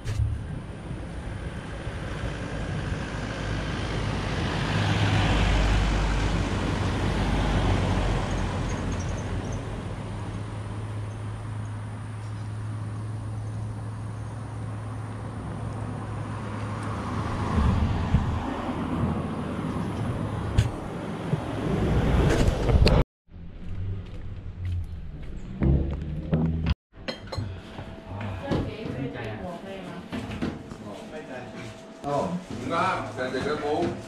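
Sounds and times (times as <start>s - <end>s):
vehicle passing: 0.0s - 22.5s
road traffic rumble: 0.0s - 26.8s.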